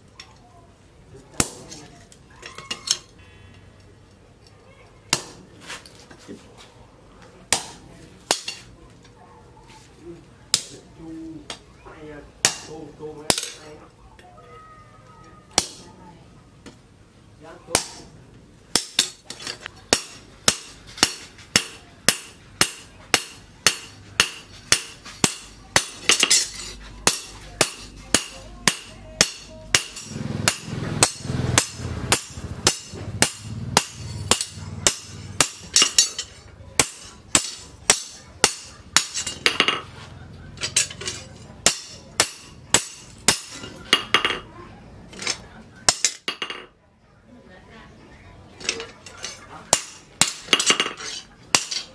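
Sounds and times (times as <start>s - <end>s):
hammer ringing on metal: 19.9s - 39.8s, 41.6s - 44.4s.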